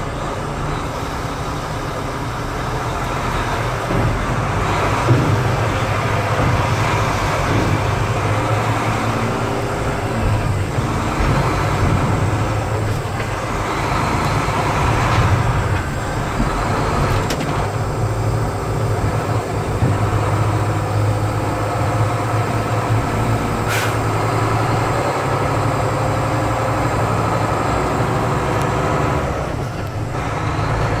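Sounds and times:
road noise: 0.0 - 31.0
truck engine running: 0.0 - 31.0.

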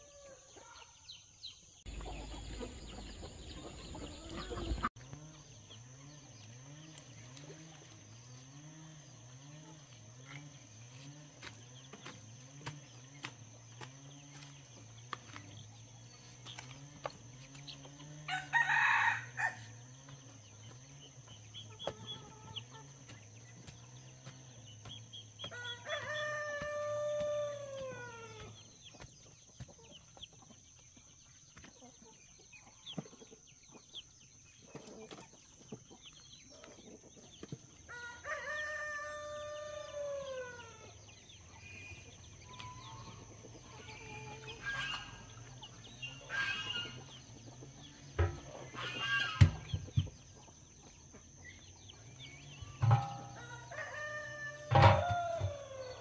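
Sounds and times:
rooster crowing: 18.3 - 19.7, 25.5 - 28.5, 37.9 - 40.9, 52.8 - 56.0.

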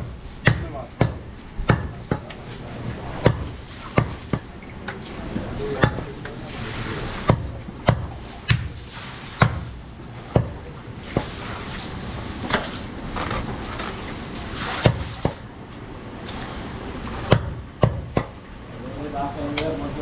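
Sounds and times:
steady background hum: 0.0 - 20.0
knife chopping meat on wooden block: 0.4 - 2.3, 3.2 - 4.5, 7.3 - 8.7, 10.3 - 10.6.

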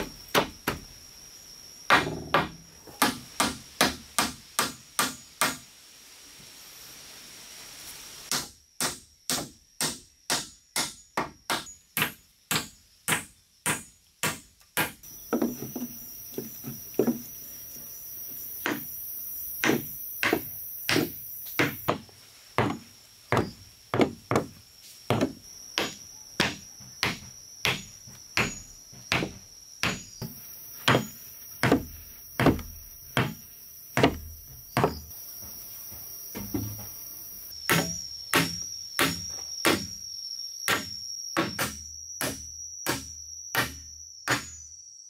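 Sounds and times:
hatchet striking wooden planks: 1.9 - 5.6, 8.3 - 17.2, 19.6 - 33.4, 34.0 - 35.1, 37.7 - 39.9, 40.7 - 44.6.

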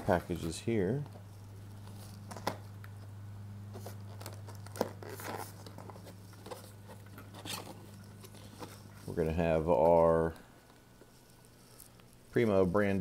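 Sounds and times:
cardboard box scraping and rustling: 3.7 - 9.9.

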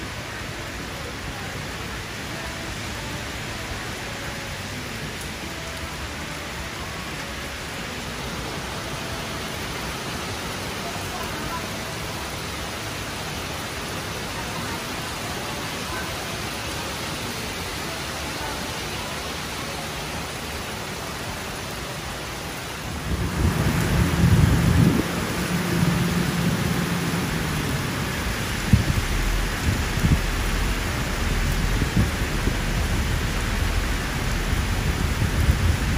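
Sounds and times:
heavy rain on foliage: 0.0 - 35.9
thunder rumbling: 22.9 - 35.9.

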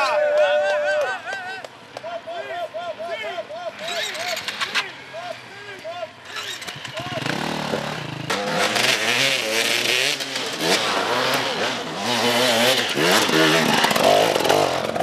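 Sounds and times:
motorcycle engines revving hard: 3.7 - 5.0, 6.2 - 15.0.

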